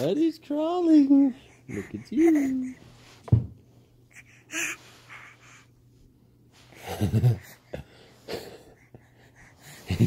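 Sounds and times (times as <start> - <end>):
baby gasping: 1.4 - 2.9, 4.1 - 5.7.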